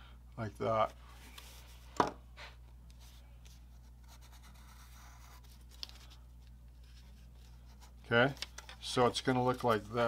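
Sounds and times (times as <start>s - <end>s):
pencil scratching on paper: 3.8s - 5.5s.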